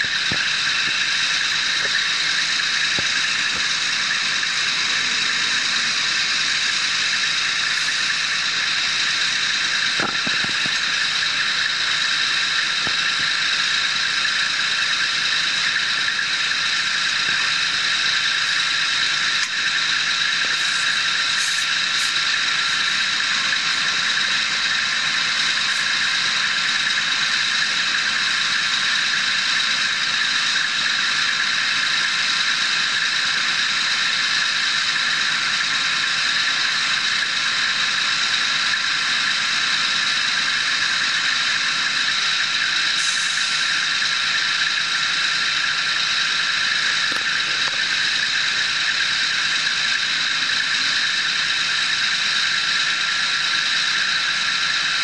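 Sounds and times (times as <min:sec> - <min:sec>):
constant high whine: 0:00.0 - 0:55.0
truck diesel engines running: 0:00.0 - 0:55.0.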